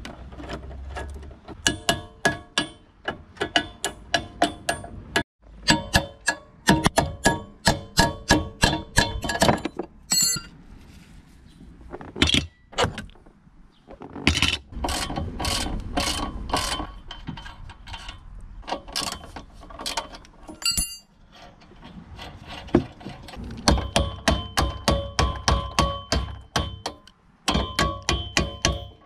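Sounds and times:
metal tool clinking: 9.0 - 10.6, 18.9 - 21.1.

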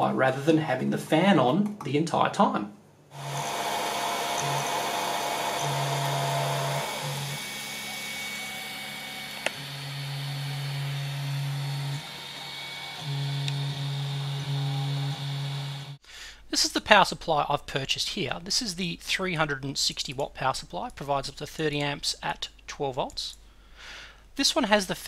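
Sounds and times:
stepper motors humming: 3.1 - 16.0
cooling fans whirring: 3.2 - 16.0.

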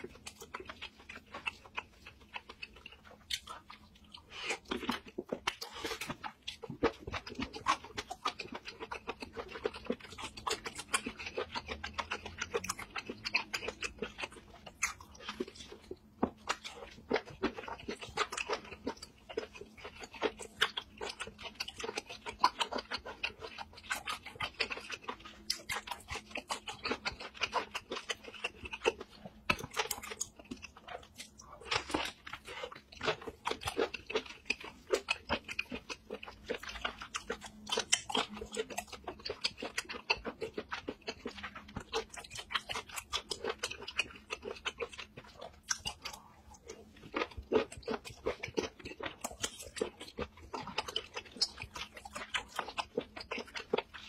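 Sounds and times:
person chewing with crunches: 0.0 - 54.0.

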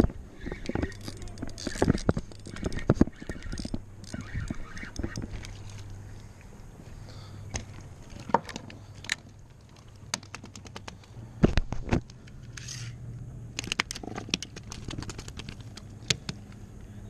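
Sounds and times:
fishing rig clicking: 0.0 - 6.0, 13.6 - 16.6.

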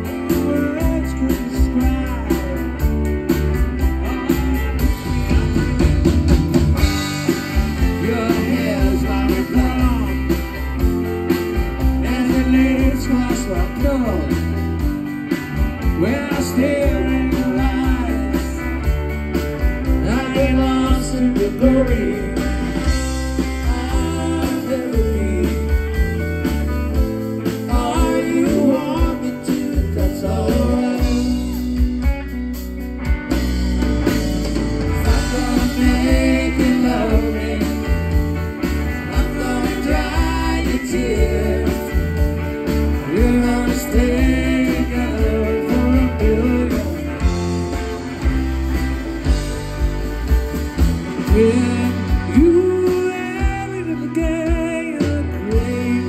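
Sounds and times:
electric guitar: 0.0 - 56.0
live rock band playing: 0.0 - 56.0.

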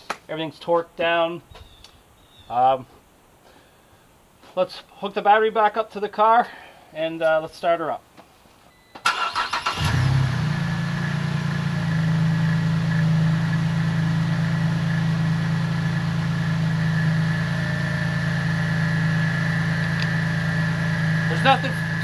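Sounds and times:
starter cranking engine: 9.0 - 10.2
car engine idling: 9.1 - 22.0
high whine: 10.2 - 22.0.

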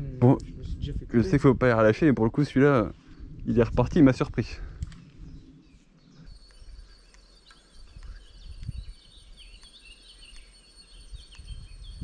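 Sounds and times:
birds chirping: 0.0 - 12.0
wind rumbling on microphone: 0.0 - 12.0.

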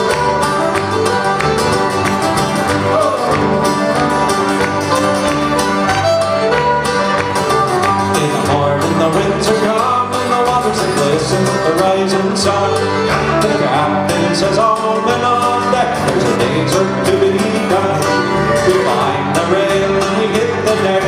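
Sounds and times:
bowed fiddle: 0.0 - 8.4, 11.4 - 14.2, 17.6 - 19.4
electric bass: 0.0 - 21.0
strummed acoustic guitars: 0.0 - 21.0.

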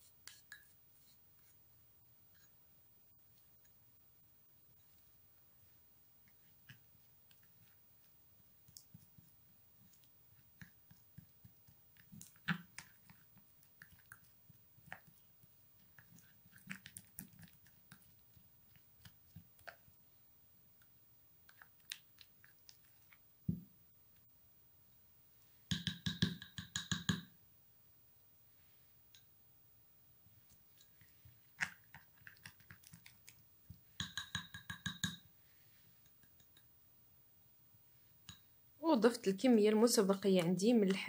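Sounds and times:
spoon tapping glass bowl: 25.7 - 27.3, 34.0 - 35.3.

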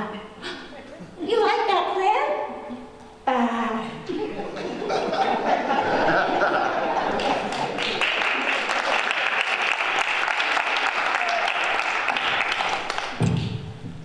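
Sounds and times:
audience applauding: 6.4 - 13.5.

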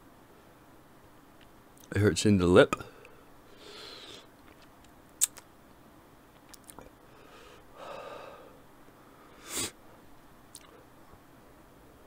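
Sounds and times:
man breathing heavily: 2.9 - 4.3, 7.0 - 9.8.

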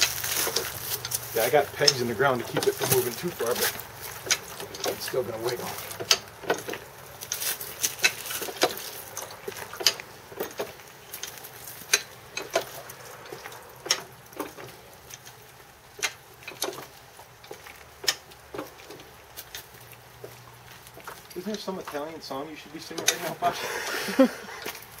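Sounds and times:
ratchet clicking: 16.0 - 19.6.

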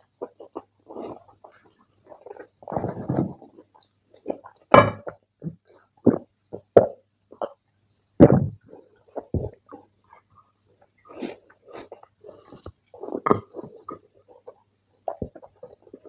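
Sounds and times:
man chewing and lip smacking: 0.0 - 2.7, 8.6 - 16.0.

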